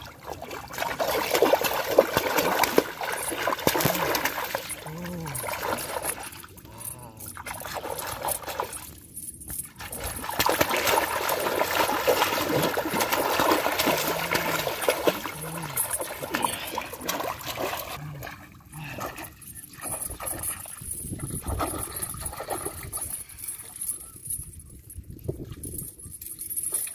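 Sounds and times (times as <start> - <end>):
fish thrashing and splashing: 0.0 - 24.0.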